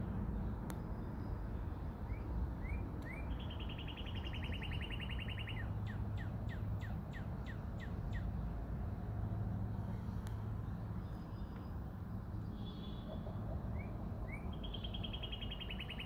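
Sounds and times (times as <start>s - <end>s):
songbird singing: 0.0s - 9.0s, 9.6s - 16.0s.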